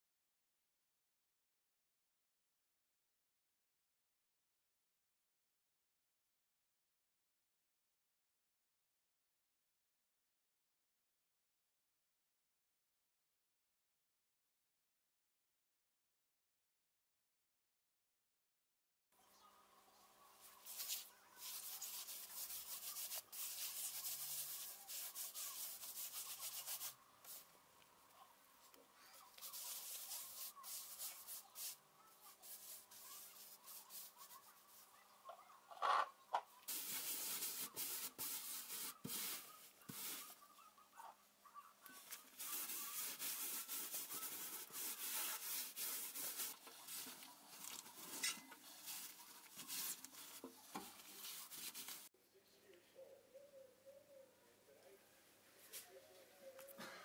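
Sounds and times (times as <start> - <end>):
gloved hand rubbing paste: 20.4 - 27.5, 29.2 - 34.9, 36.7 - 40.4, 41.9 - 52.1.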